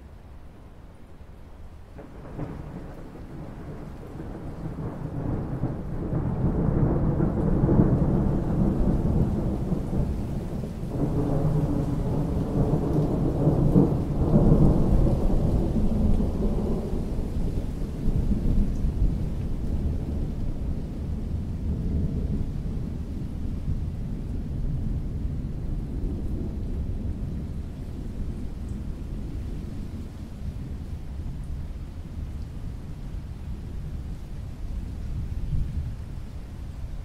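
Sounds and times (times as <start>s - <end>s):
steady rain: 0.0s - 37.0s
rolling thunder: 2.0s - 31.5s.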